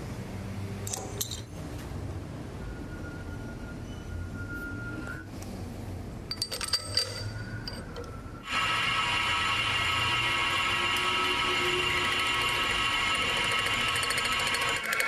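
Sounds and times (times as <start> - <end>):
metal clinks: 0.9 - 1.6, 6.3 - 8.2
metal lathe whining: 6.9 - 15.0.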